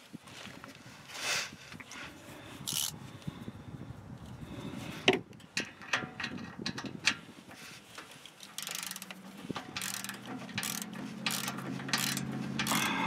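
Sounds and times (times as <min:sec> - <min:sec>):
socket ratchet clicking: 0:02.7 - 0:03.0, 0:08.6 - 0:13.0.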